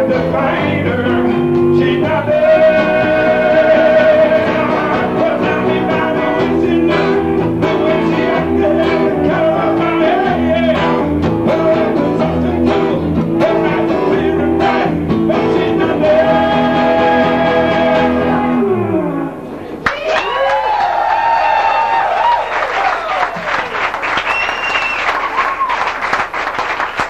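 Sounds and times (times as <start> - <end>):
man singing lead vocal: 0.0 - 18.8
acoustic bass guitar: 0.0 - 19.8
electric guitar: 0.0 - 20.2.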